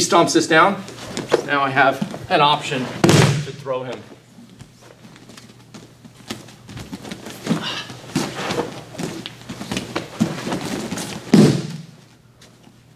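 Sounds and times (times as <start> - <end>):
loud thud: 3.0 - 3.6, 11.3 - 11.9
bare feet shuffling on mats: 3.9 - 12.8.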